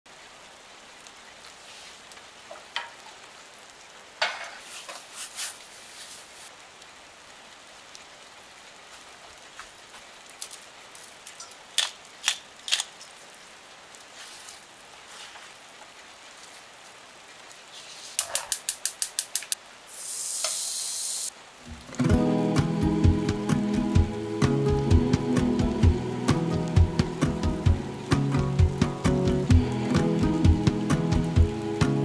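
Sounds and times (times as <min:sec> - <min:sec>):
faint steady hiss: 0:00.1 - 0:32.0.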